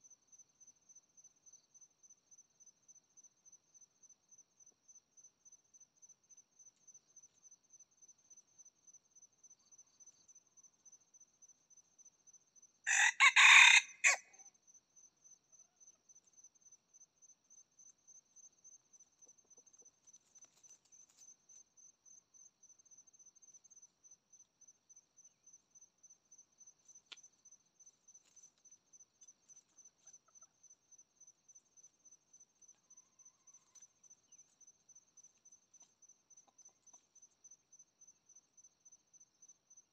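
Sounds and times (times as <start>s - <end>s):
insects chirping: 0.0s - 39.9s
rooster crowing: 12.9s - 14.4s.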